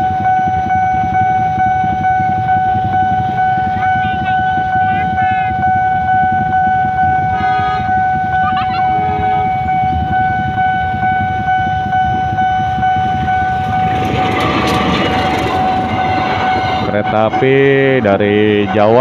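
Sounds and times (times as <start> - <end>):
level crossing warning alarm: 0.0 - 19.0
train approaching: 0.0 - 19.0
vehicle horn: 6.5 - 10.1
motorcycles idling: 6.8 - 19.0.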